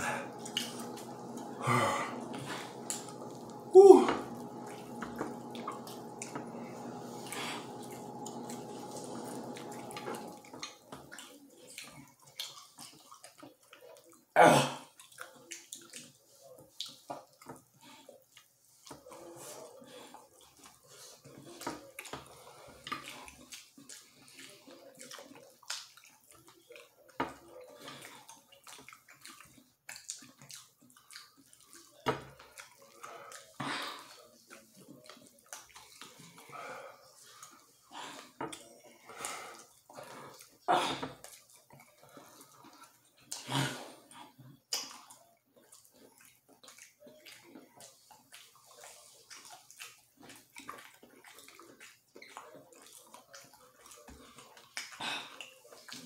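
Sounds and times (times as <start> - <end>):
steady multi-tone hum: 0.0 - 10.7
wet chewing and lip-smacking: 4.4 - 14.3, 14.9 - 36.5, 37.1 - 56.0.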